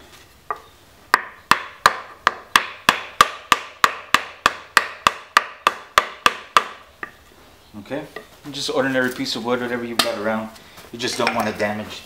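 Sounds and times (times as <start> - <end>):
hammer knocking on wood: 1.2 - 6.8.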